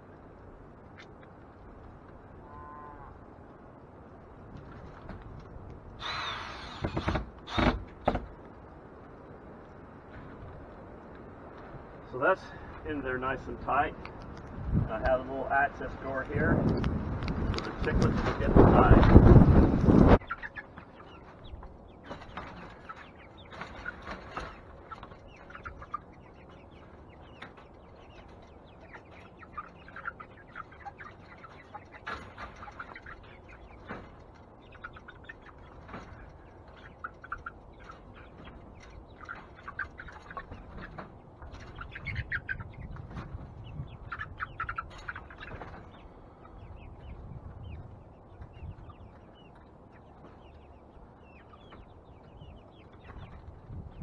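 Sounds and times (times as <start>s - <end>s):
chicks peeping: 12.2s - 54.0s
hens clucking: 12.2s - 54.0s
wire cage rumbling and knocking: 22.0s - 41.8s.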